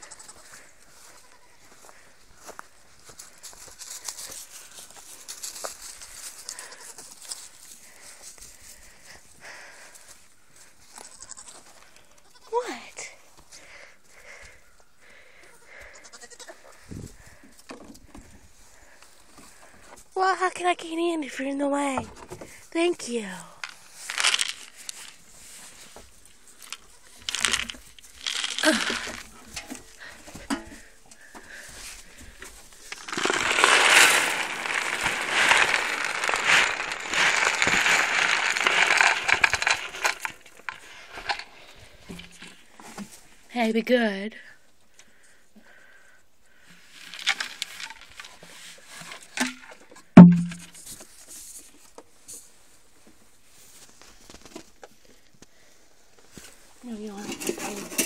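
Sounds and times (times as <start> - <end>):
straw bedding rustling and crunching: 0.0 - 12.0, 22.7 - 43.3, 46.8 - 49.6
hay rustling: 23.8 - 30.0, 31.6 - 40.4.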